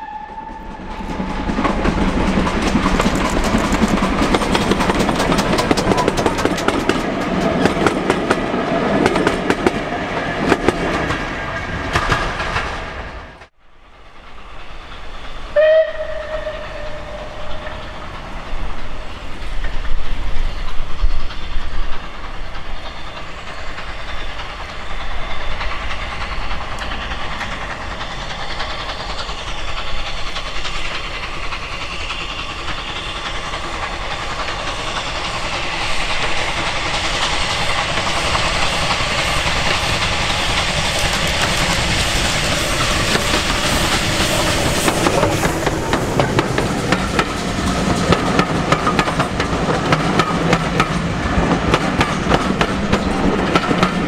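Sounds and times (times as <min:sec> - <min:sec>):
steam train hissing: 0:00.0 - 0:54.0
wheels clattering over rail joints: 0:01.0 - 0:09.8.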